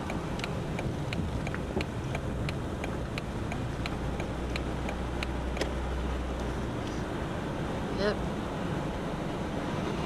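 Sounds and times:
turn signal ticking: 0.0 - 7.0
engine and road rumble: 0.0 - 10.0.

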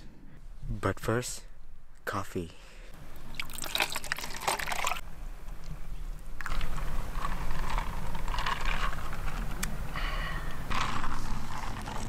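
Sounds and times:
steady noise with low rumble: 0.0 - 12.0
coffee pouring into plastic cup: 3.3 - 5.0, 6.4 - 9.1.

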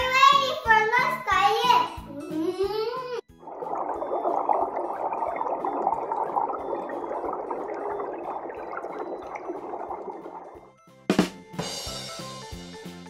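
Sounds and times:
underwater bubbling: 3.3 - 10.7.

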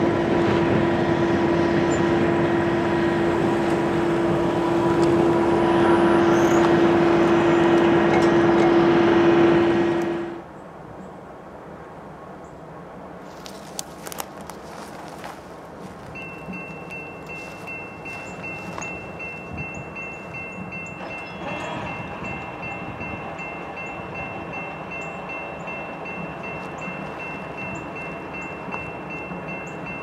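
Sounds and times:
crossing warning bell ringing: 2.0 - 10.4, 15.9 - 30.0
wind on microphone: 17.3 - 24.6.

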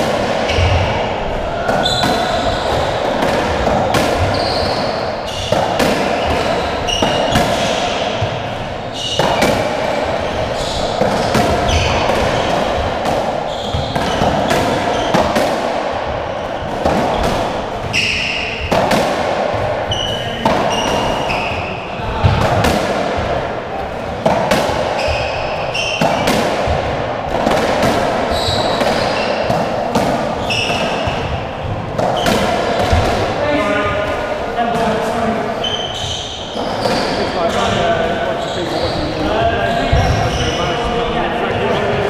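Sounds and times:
ball hitting rackets and walls: 0.0 - 40.7
shoes squeaking on court: 0.5 - 1.0, 1.7 - 3.1, 4.1 - 12.8, 13.5 - 15.3, 16.3 - 18.7, 19.9 - 21.7, 24.9 - 26.3, 28.3 - 29.6, 30.4 - 32.4, 35.6 - 40.8.

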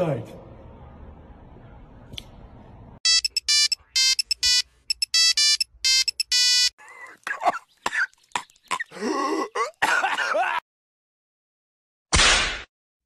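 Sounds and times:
phone ringtone beeping: 3.0 - 6.7.

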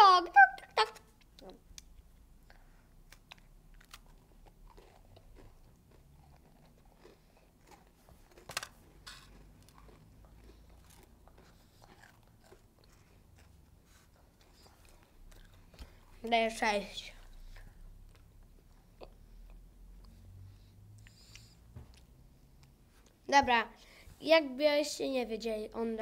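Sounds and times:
biscuits crunching and chewing: 0.8 - 20.3.

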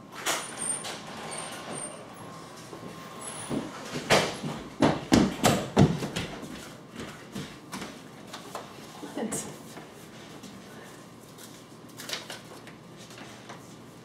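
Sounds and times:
quick footsteps on floor: 3.5 - 8.6.

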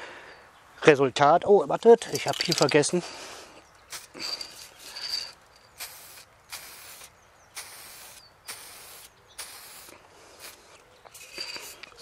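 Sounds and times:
aerosol spray can hissing: 5.7 - 10.6.

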